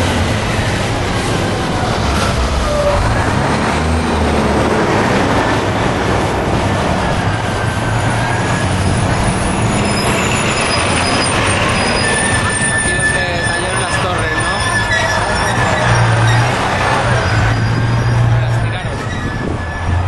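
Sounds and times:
train rumbling by: 0:00.0 - 0:20.0
high wheel squeals: 0:01.5 - 0:03.5, 0:06.9 - 0:20.0.

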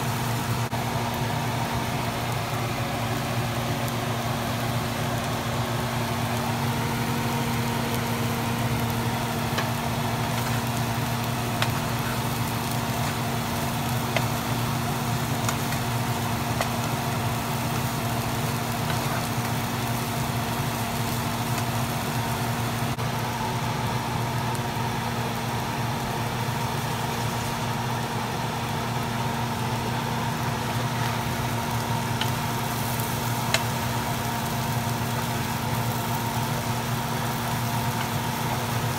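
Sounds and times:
fish and onions sizzling in pan: 0:00.0 - 0:23.4, 0:24.0 - 0:38.9.

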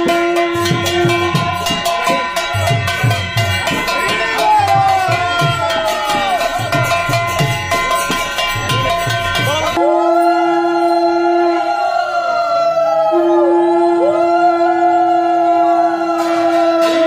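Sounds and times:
conch shell steady low note: 0:13.1 - 0:14.6.

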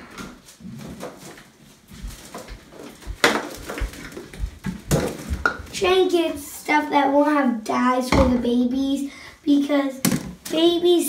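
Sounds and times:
handling knocks and rustles: 0:00.0 - 0:05.9.

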